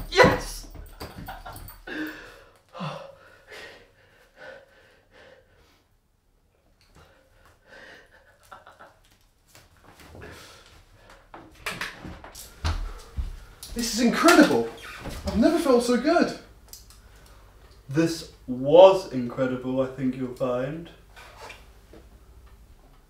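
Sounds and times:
man gasping and sniffing: 0:01.8 - 0:05.9.

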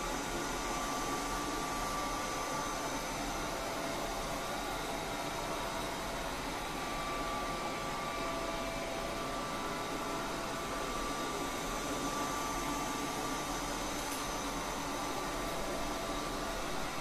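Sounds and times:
faint motor whine: 0:00.0 - 0:17.0.

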